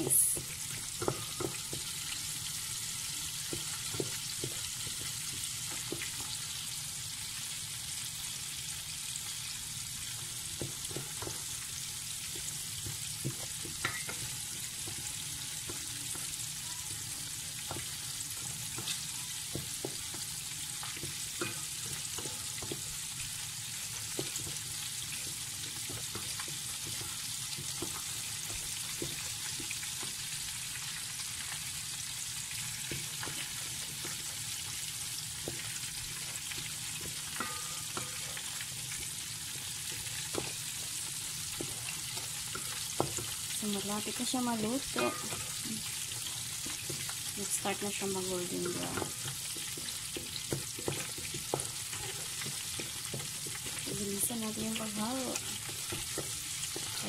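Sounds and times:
roux sizzling in a pot: 0.0s - 57.0s
spatula scraping and tapping pot: 0.4s - 2.2s, 3.4s - 6.5s, 10.5s - 11.6s, 12.2s - 30.8s, 32.8s - 34.6s, 35.4s - 43.6s, 45.0s - 47.3s, 48.6s - 57.0s.

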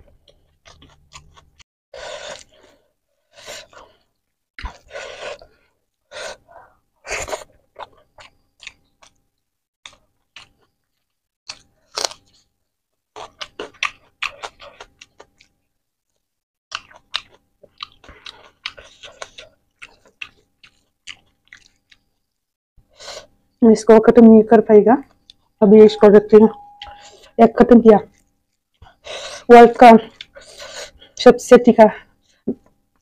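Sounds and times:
close chewing mouth noises: 0.1s - 1.6s, 7.2s - 9.2s, 13.1s - 22.5s, 28.0s - 31.2s.

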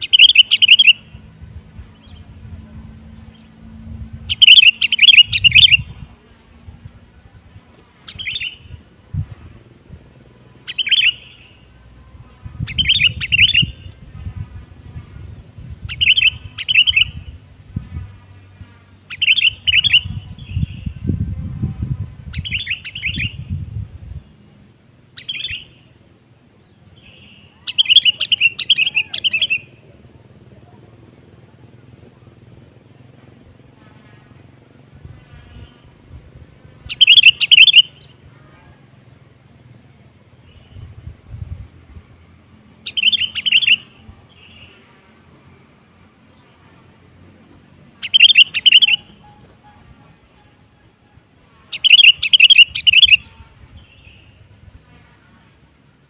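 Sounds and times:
bird chirping phrases: 0.0s - 2.4s, 4.3s - 6.1s, 8.0s - 8.8s, 10.6s - 14.0s, 15.3s - 17.4s, 18.4s - 23.6s, 26.6s - 30.9s, 36.8s - 38.3s, 42.8s - 45.7s, 48.0s - 50.6s, 51.6s - 54.5s.

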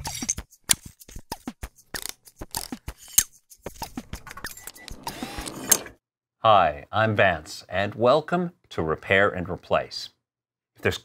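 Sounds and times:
sharp mechanical clicks and clinks: 2.0s - 6.0s.

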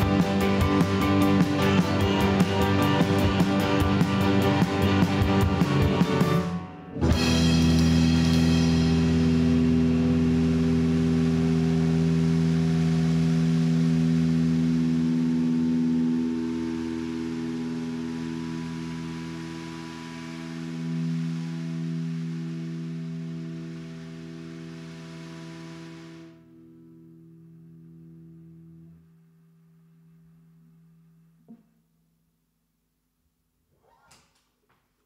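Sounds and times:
live rock band playing: 0.0s - 26.4s.

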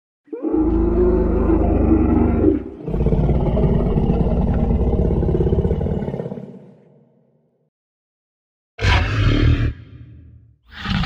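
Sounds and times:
dinosaur roars: 0.3s - 7.0s, 8.8s - 10.1s, 10.7s - 11.0s.

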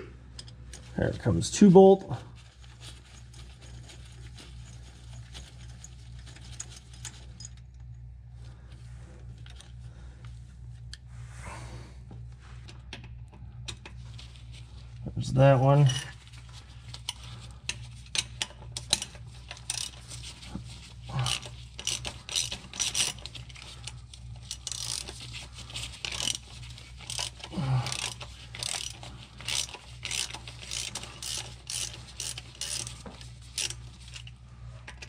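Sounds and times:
hand ratchet clicking: 17.0s - 20.0s, 21.2s - 34.3s.

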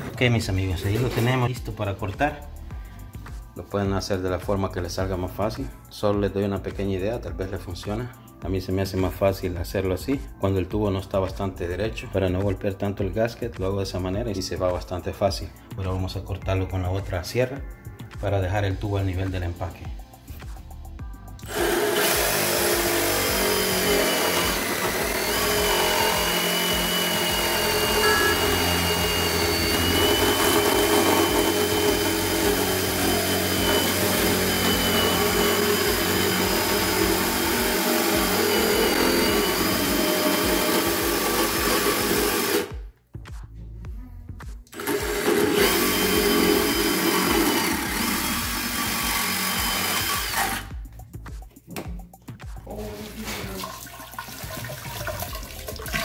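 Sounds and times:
power saw cutting plastic pipe: 21.4s - 42.8s, 44.8s - 50.7s.

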